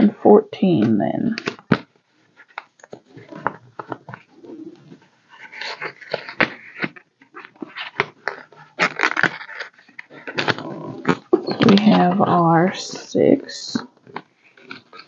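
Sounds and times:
paper rustling and crinkling: 0:01.4 - 0:13.1.

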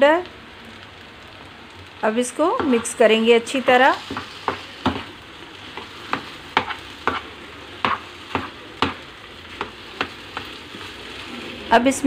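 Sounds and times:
oil sizzling: 0:00.0 - 0:12.0
spatula scraping a pan: 0:02.6 - 0:11.8.

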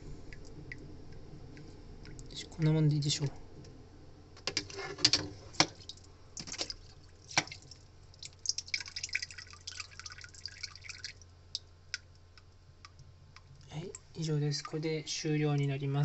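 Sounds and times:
low hum: 0:00.0 - 0:08.6
water dripping into tub: 0:00.3 - 0:02.4, 0:05.6 - 0:15.7
water trickling and splashing: 0:05.5 - 0:15.7.

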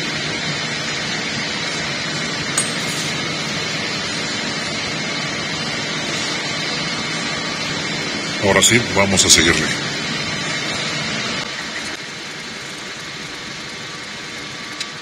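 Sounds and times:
workshop machine whirring: 0:00.0 - 0:15.0
light metallic clink: 0:02.6 - 0:03.3.

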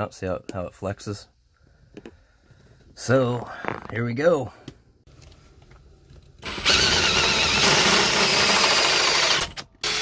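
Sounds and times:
power drill drilling through metal: 0:06.4 - 0:10.0.

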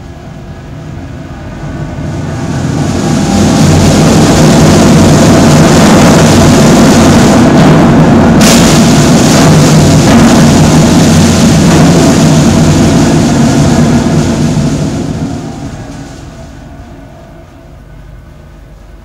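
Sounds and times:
percussion drum roll: 0:01.6 - 0:18.1.

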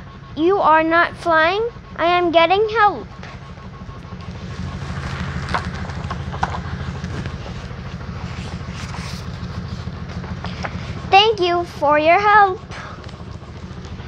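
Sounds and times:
rapidly pulsing low hum: 0:00.0 - 0:14.0
book pages flipping: 0:04.7 - 0:10.8.

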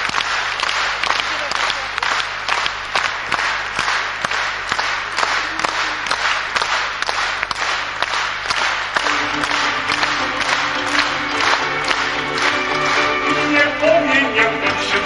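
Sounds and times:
audience clapping in unison: 0:00.0 - 0:15.0
music: 0:09.0 - 0:15.0.

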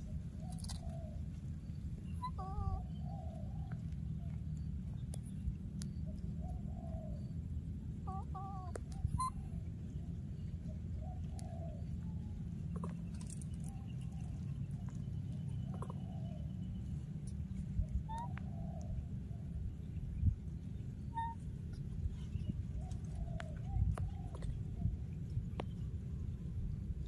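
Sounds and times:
steady low rumble: 0:00.0 - 0:27.0
baby monkeys cooing: 0:02.1 - 0:03.9, 0:08.0 - 0:09.6, 0:12.7 - 0:16.8, 0:17.8 - 0:18.9, 0:21.1 - 0:21.5
higher wavering calls: 0:02.2 - 0:03.3.

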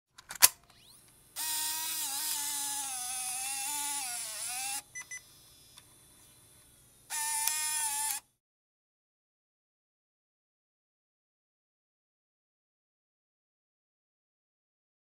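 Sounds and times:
small loading motor whirring: 0:00.6 - 0:08.4.

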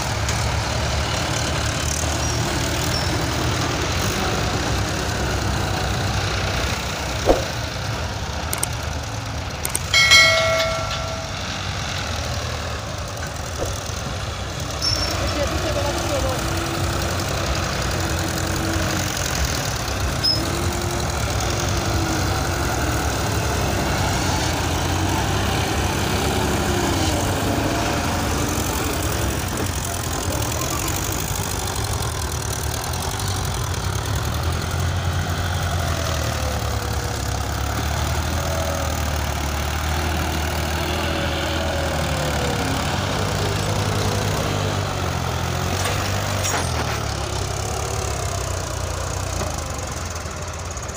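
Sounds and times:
tractor engines under load: 0:00.0 - 0:50.9.

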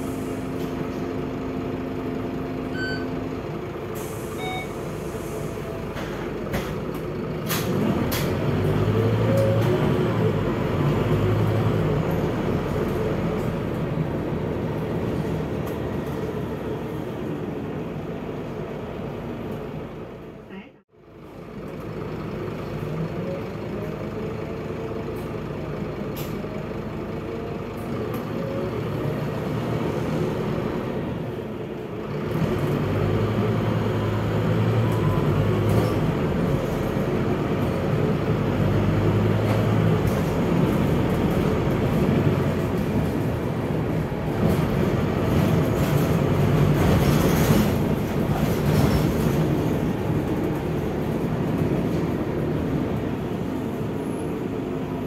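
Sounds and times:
bus diesel engine: 0:00.0 - 0:55.0.

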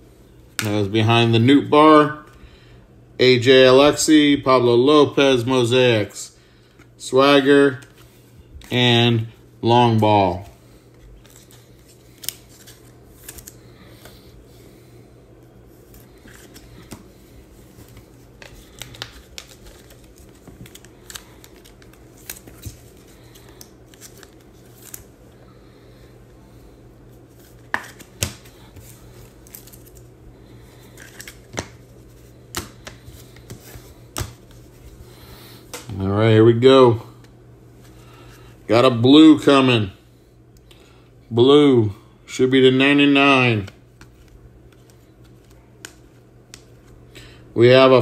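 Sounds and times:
low steady hum: 0:00.0 - 0:48.0
cards clicking and rustling: 0:10.3 - 0:14.2, 0:15.8 - 0:25.1, 0:27.3 - 0:34.9, 0:43.6 - 0:46.9.

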